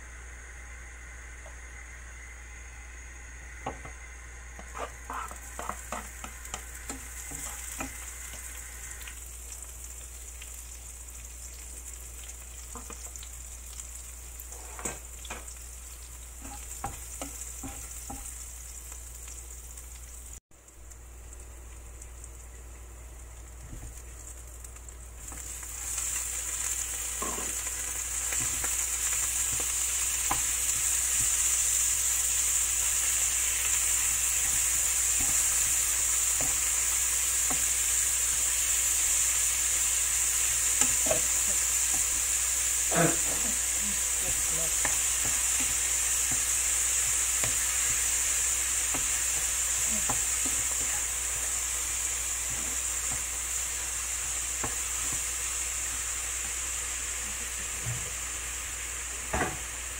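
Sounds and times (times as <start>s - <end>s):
food sizzling in a frying pan: 0.0s - 59.9s
wooden spatula scraping a pan: 4.6s - 8.0s.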